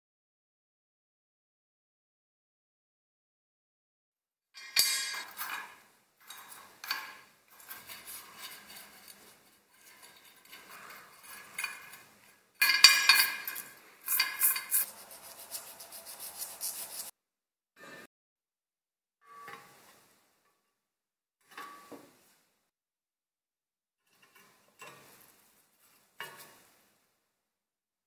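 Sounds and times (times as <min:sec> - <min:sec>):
wire brush scrubbing metal coils: 0:04.6 - 0:17.1.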